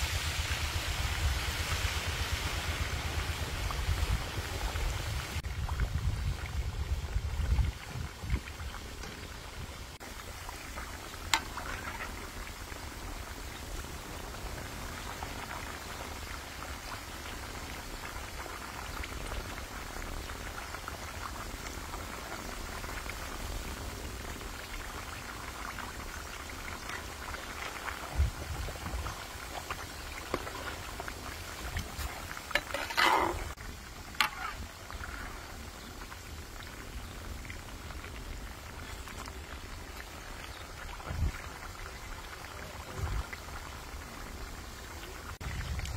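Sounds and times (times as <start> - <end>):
oil bubbling and sizzling: 0.0 - 45.9
metal spatula turning food in oil: 11.2 - 12.4, 30.0 - 34.9.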